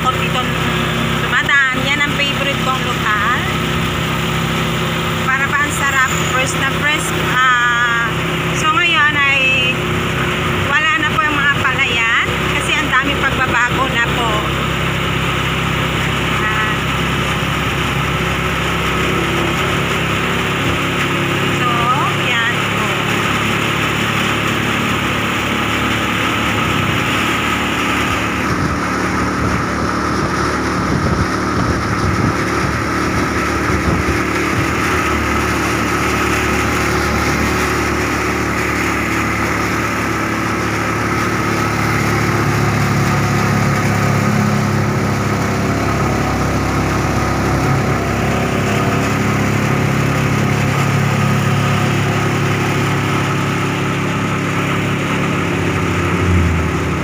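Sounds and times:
motorcycle engine running: 0.0s - 57.0s
road noise: 0.0s - 57.0s.

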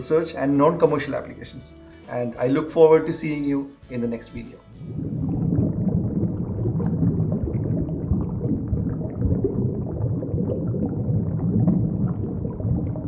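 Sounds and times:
underwater bubbling: 4.7s - 13.0s.

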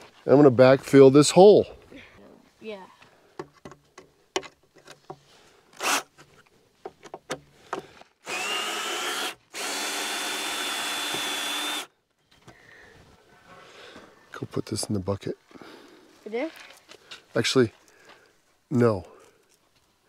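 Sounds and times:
handling knocks and clicks: 3.4s - 5.3s, 6.2s - 8.0s
power drill whining: 5.8s - 6.1s, 8.2s - 11.9s.

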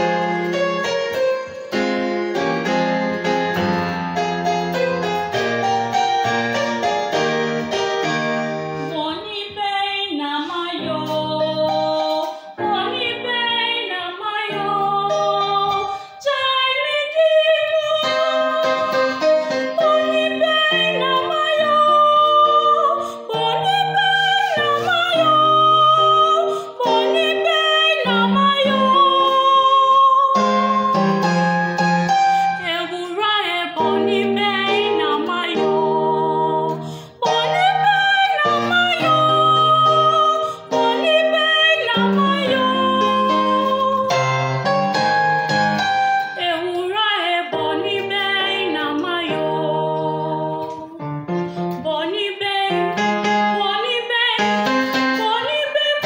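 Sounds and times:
electronic keyboard piano: 0.0s - 9.7s, 10.5s - 56.0s
woman singing with vibrato: 8.8s - 31.8s, 32.4s - 44.6s, 46.4s - 51.1s, 51.7s - 56.0s.

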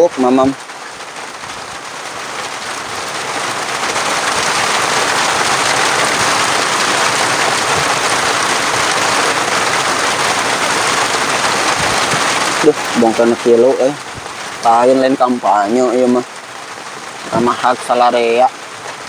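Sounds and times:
steady rain hissing: 0.0s - 19.0s.

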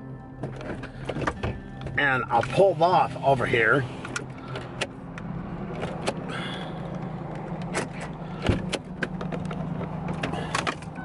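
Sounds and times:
truck engine running: 0.0s - 11.0s
sharp clicks and knocks: 6.9s - 11.0s.

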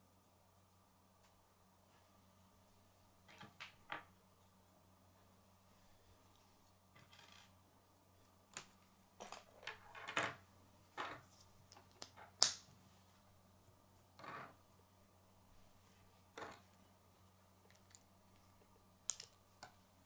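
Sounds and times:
plastic pieces snapping together: 11.7s - 12.7s, 19.1s - 19.4s.

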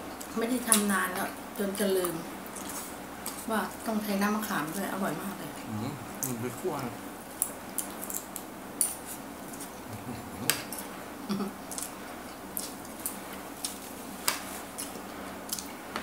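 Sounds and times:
people chewing: 2.4s - 3.6s, 5.6s - 6.6s, 7.3s - 15.8s.

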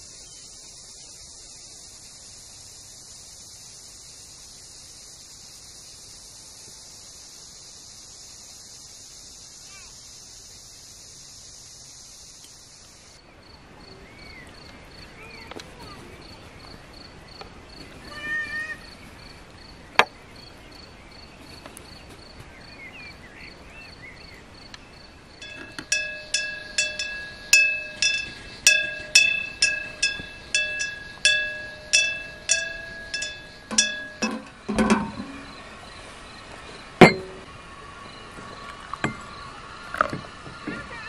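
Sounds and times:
bird calls: 19.8s - 41.0s
insect chirring: 24.6s - 37.5s
ringing metallic clink: 25.4s - 35.6s, 37.0s - 37.5s.

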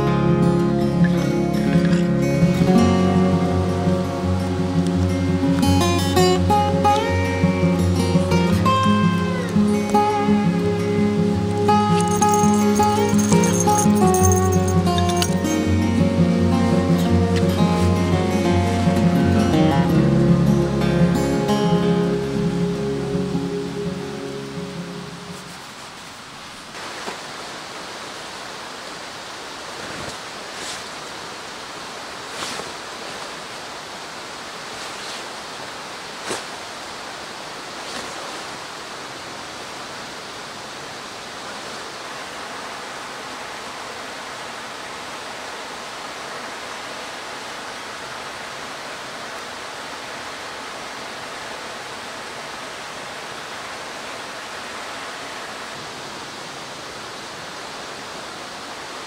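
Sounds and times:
running water rushing: 0.0s - 59.0s
knocks and rustles of tarp: 25.4s - 27.4s, 29.6s - 31.2s, 32.1s - 33.7s, 34.6s - 36.7s, 37.7s - 38.7s.

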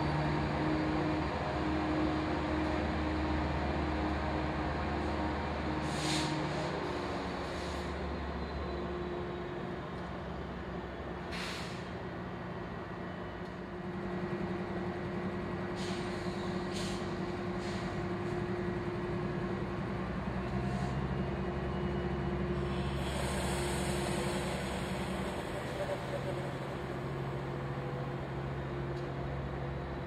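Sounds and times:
diesel locomotive idling: 0.0s - 30.0s
air brake hisses: 5.8s - 6.7s, 11.3s - 11.9s, 15.8s - 18.0s, 22.6s - 26.8s.

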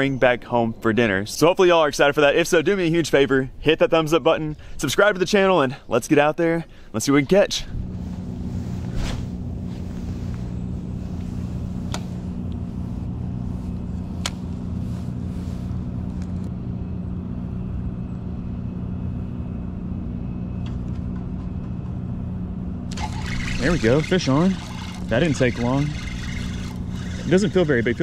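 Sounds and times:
low machine drone: 7.6s - 28.0s.

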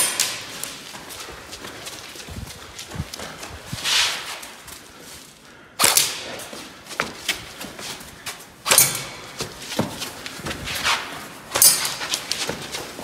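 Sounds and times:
footsteps: 0.0s - 13.0s
airsoft rifle shots: 5.8s - 6.4s, 8.6s - 9.4s
hits on metal targets: 8.6s - 9.4s, 11.5s - 12.0s.

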